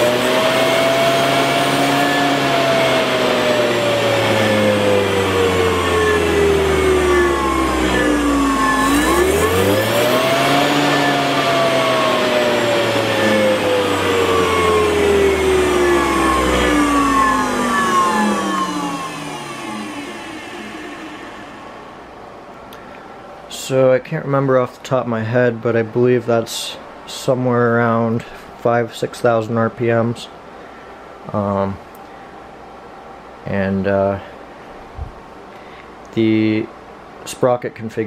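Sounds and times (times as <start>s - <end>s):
electric motor whirring: 0.0s - 22.2s.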